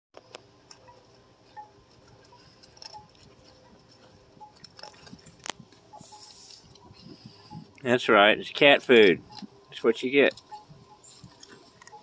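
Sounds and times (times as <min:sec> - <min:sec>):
raccoon crunching kibble: 0:00.2 - 0:07.8, 0:08.5 - 0:12.0.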